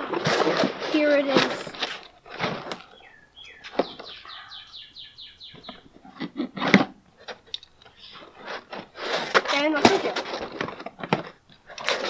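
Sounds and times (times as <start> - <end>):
cardboard box rustling and scraping: 0.0 - 2.9, 8.1 - 12.0
bird trilling: 2.8 - 6.0.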